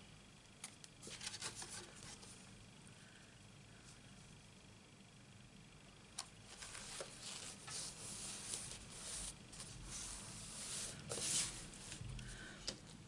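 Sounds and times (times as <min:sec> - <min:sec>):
card stock rustling and scraping: 0:01.0 - 0:02.3, 0:06.5 - 0:12.1.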